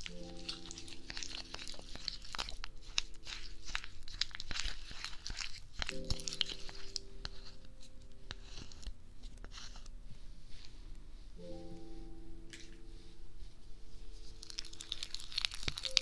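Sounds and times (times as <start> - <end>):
sticky material crackling on microphone: 0.0 - 9.9, 14.2 - 16.0
faint background music chords: 0.0 - 16.0.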